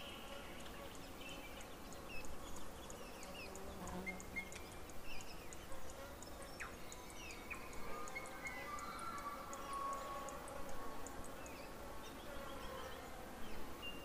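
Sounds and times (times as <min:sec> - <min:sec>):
bird calls: 0:00.0 - 0:10.7.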